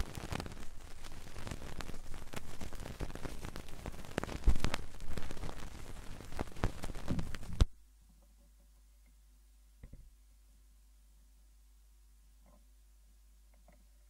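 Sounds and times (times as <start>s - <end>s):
vinyl record crackles and pops: 0.0s - 10.2s.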